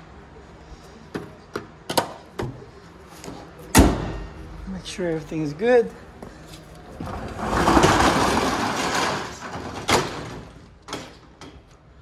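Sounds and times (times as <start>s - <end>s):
rough scraping and rustling: 6.4s - 9.8s.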